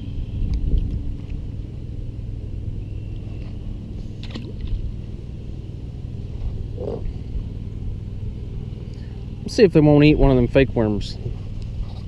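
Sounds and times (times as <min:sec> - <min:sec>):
low rumble outdoors: 0:00.0 - 0:12.0
short rustle: 0:11.2 - 0:12.0.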